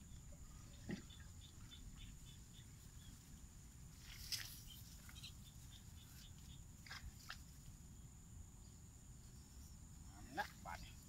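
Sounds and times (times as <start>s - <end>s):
rustles and clicks of hands: 4.0s - 5.3s.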